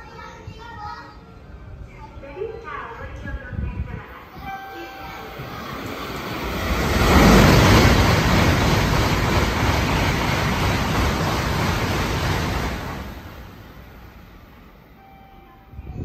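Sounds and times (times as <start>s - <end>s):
high-speed train passing: 0.0s - 16.0s
rushing air and wheels on rail: 3.5s - 15.1s.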